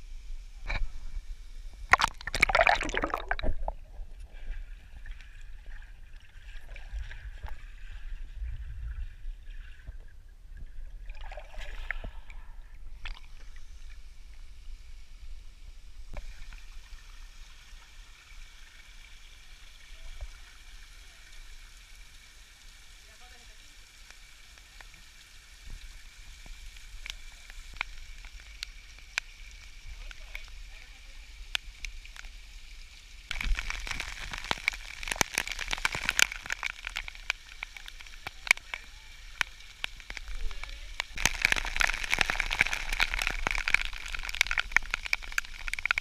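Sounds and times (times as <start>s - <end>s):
water splashing: 1.8s - 8.7s, 33.3s - 46.0s
water rushing: 1.9s - 4.1s, 33.3s - 46.0s.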